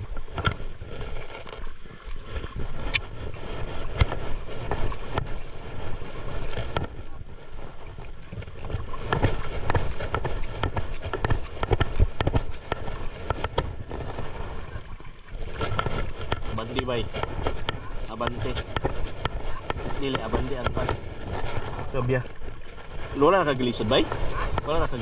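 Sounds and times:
water moving around boat: 0.0 - 25.0
wind buffeting microphone: 0.0 - 25.0
sharp knocks and clicks: 8.7 - 14.0.

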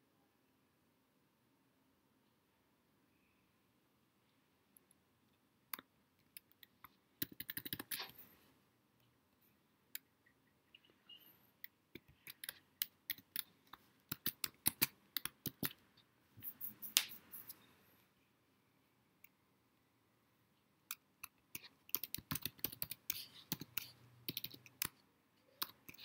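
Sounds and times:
keyboard typing: 5.7 - 8.3, 11.6 - 17.6, 20.9 - 26.0.

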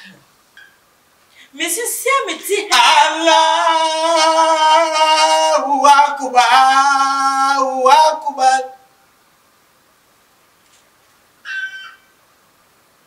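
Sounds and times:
man chanting prayer: 1.6 - 8.9.

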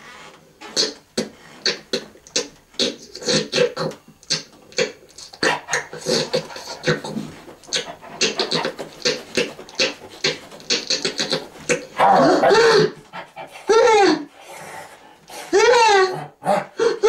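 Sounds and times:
person whining like a dog: 5.2 - 14.4, 15.4 - 17.0
person panting like a dog: 5.5 - 17.0.

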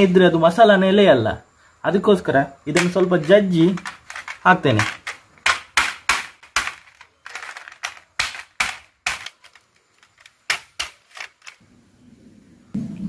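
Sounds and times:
stone knocking crab shells: 3.8 - 11.0.

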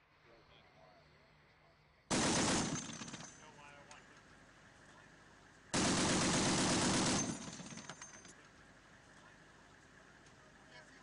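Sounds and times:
heavy machine gun burst: 2.1 - 3.4, 5.8 - 8.0.

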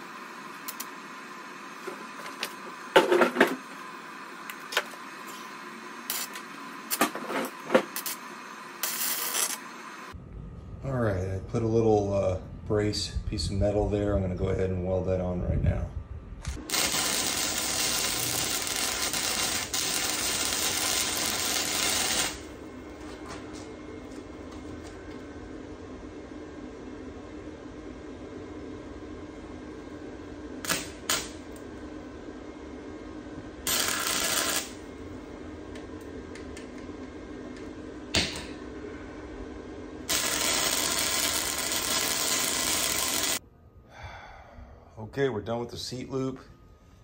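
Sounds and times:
arc welder crackling hiss: 0.0 - 10.2, 16.5 - 25.3, 30.6 - 31.8, 33.6 - 36.9, 40.0 - 43.4.

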